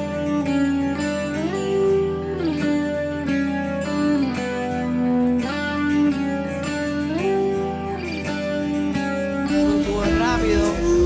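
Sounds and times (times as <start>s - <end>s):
sliding guitar melody: 0.0s - 11.0s.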